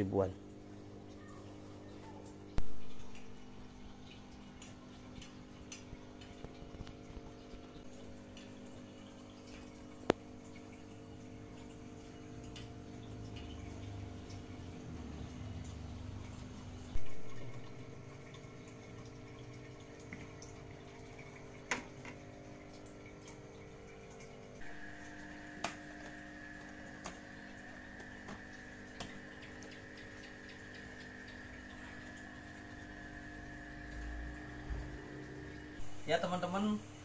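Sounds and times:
aquarium water trickling: 0:00.0 - 0:37.0
steady hum: 0:00.0 - 0:37.0.

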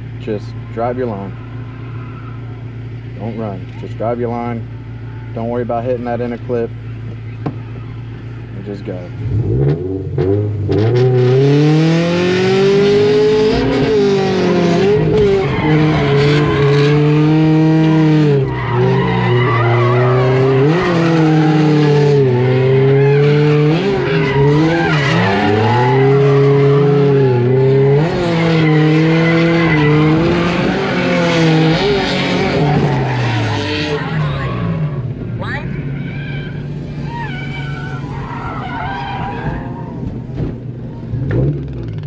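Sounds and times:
car engine revving hard: 0:09.2 - 0:35.0
tyres squealing: 0:13.2 - 0:40.2.

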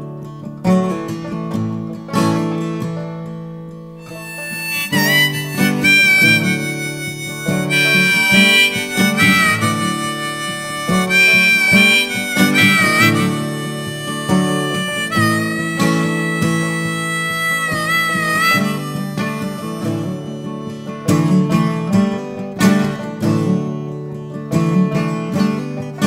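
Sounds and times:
strummed acoustic guitar: 0:00.0 - 0:26.0
harmonica bending notes: 0:03.9 - 0:23.3.

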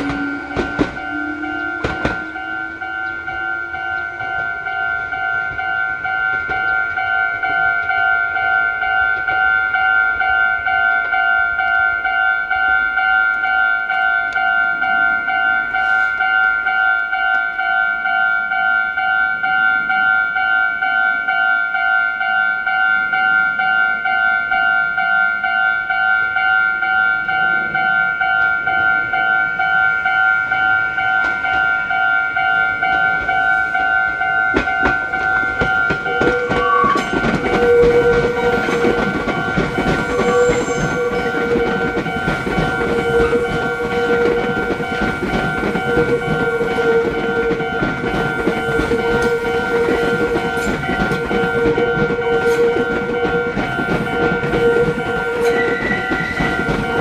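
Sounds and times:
train wheel squeal: 0:00.0 - 0:11.8, 0:14.0 - 0:17.2, 0:28.2 - 0:57.0
train wheels clicking over rail joints: 0:00.0 - 0:14.5, 0:27.6 - 0:57.0
steady ringing tone: 0:00.0 - 0:57.0.

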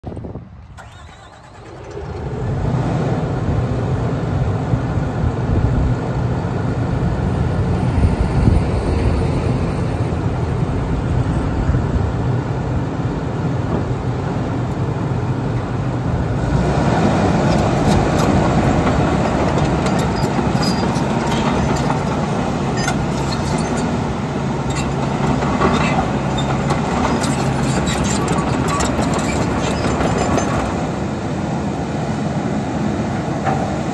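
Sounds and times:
diesel engine running: 0:00.0 - 0:33.8
steel tracks clanking and squeaking: 0:00.6 - 0:02.5, 0:17.3 - 0:31.0.

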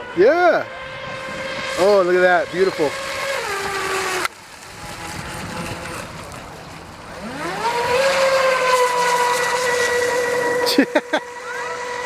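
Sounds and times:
boat motor whining: 0:00.0 - 0:12.0
water and wind noise: 0:00.0 - 0:12.0.

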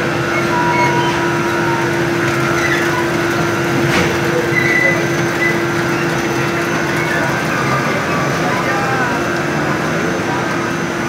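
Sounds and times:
belt conveyor humming: 0:00.0 - 0:11.0
faint squeaks: 0:00.3 - 0:08.8.

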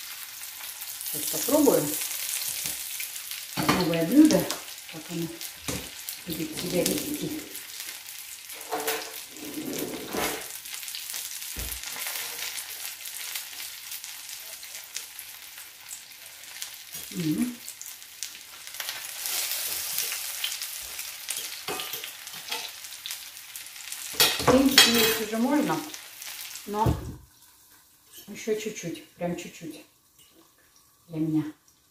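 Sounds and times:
food sizzling in oil: 0:00.0 - 0:31.9
cutlery clinks: 0:21.4 - 0:22.7.

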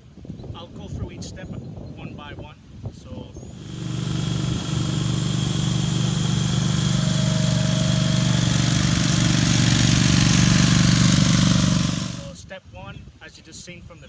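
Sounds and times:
ride-on mower engine running: 0:03.6 - 0:12.4.

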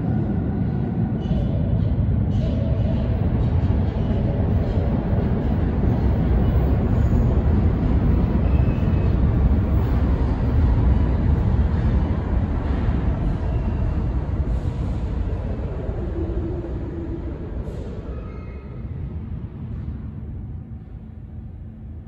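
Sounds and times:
subway train rumbling in tunnel: 0:00.0 - 0:22.0.

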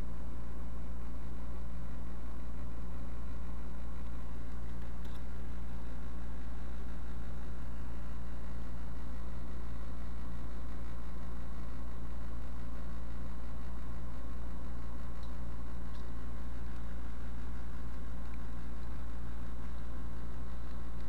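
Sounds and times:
low hum: 0:00.0 - 0:21.0
faint small clicks: 0:04.0 - 0:05.3, 0:15.1 - 0:16.9.

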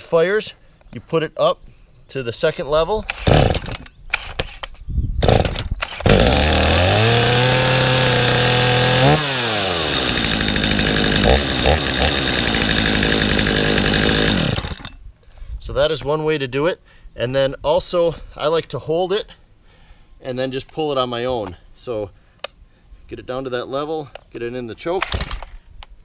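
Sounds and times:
chainsaw idling: 0:05.2 - 0:15.0
starter cord rasping: 0:05.2 - 0:15.0.

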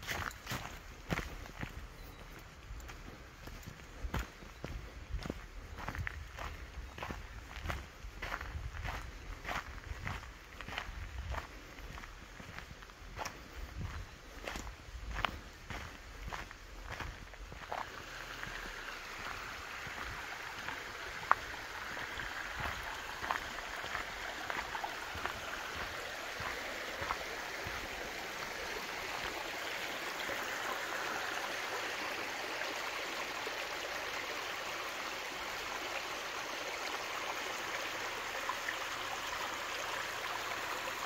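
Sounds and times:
footsteps: 0:00.0 - 0:29.6
stream rushing: 0:02.9 - 0:41.0.

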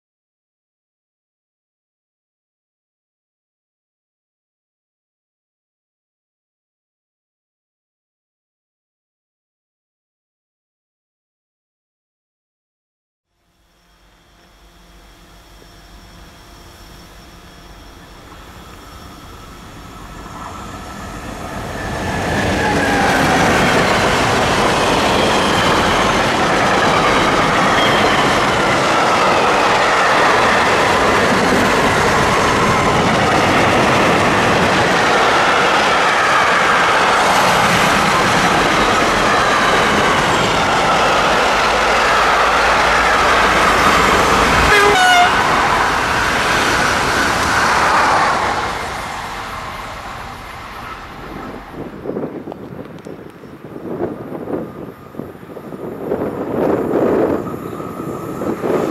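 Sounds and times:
train wheels rolling on rails: 0:13.6 - 0:58.9
wheels squealing: 0:13.8 - 0:52.3.

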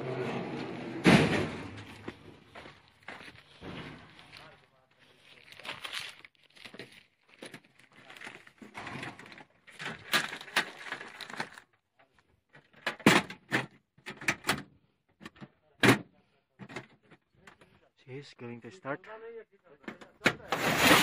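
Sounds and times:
sharp knocks and clunks: 0:01.0 - 0:02.2
footsteps on sand: 0:01.8 - 0:07.6.

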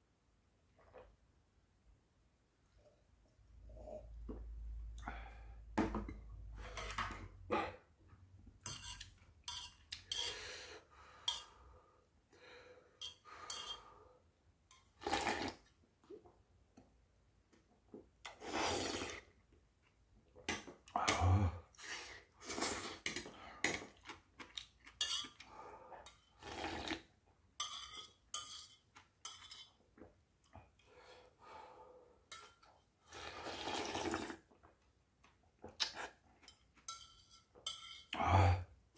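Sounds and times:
chopsticks clinking on metal pot: 0:08.7 - 0:10.3, 0:13.0 - 0:13.8, 0:25.0 - 0:25.4, 0:27.6 - 0:29.8, 0:36.4 - 0:38.1
slurping noodles: 0:15.0 - 0:15.7, 0:18.3 - 0:19.3, 0:26.4 - 0:27.1, 0:33.0 - 0:34.5.

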